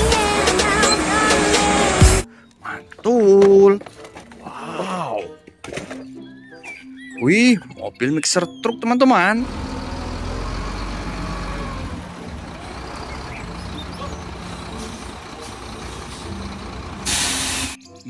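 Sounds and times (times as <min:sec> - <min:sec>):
diesel engine rumbling: 0:00.0 - 0:02.3, 0:09.4 - 0:17.8
short loud hiss: 0:17.0 - 0:17.8.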